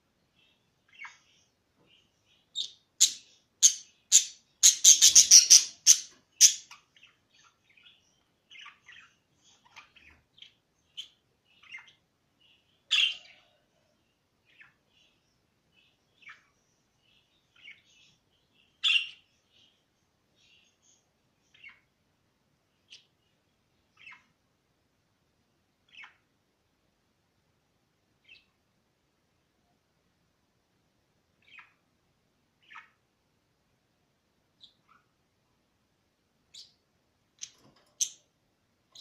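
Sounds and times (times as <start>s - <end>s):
budgerigars chirping: 2.3s - 12.0s, 12.9s - 13.5s, 18.8s - 19.3s, 21.5s - 21.9s, 24.0s - 24.3s, 25.9s - 26.2s, 31.4s - 31.8s, 32.6s - 33.0s.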